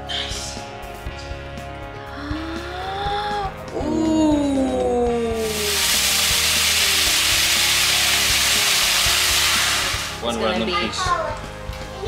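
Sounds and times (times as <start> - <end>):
background music: 0.0 - 12.0
tortillas sizzling in frying oil: 5.4 - 10.3.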